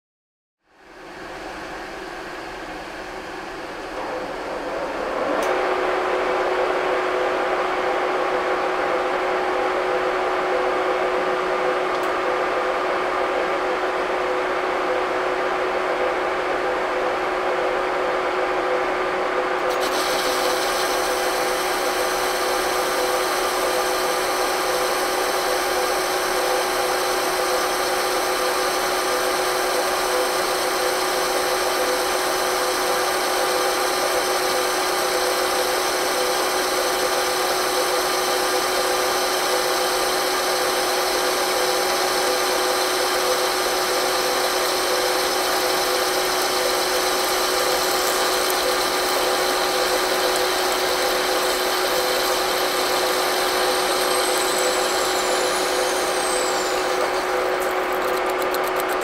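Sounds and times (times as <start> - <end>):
lathe cutting steel: 19.6 - 59.0
faint high whine sliding down: 43.2 - 57.6.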